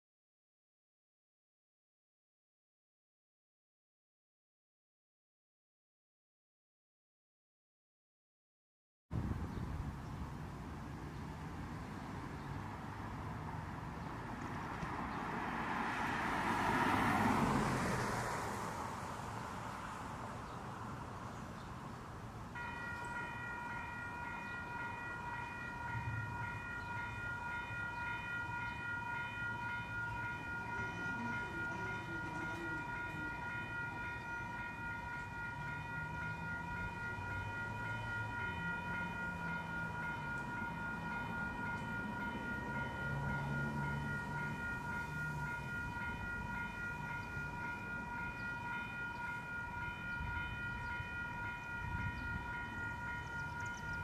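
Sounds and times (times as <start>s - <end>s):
low rumble of road traffic: 9.1s - 54.0s
railroad crossing bell ringing: 22.5s - 54.0s.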